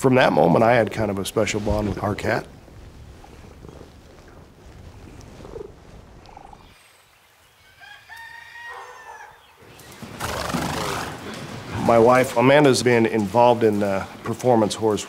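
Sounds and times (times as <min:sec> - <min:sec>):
rooster crowing: 0:07.6 - 0:09.5.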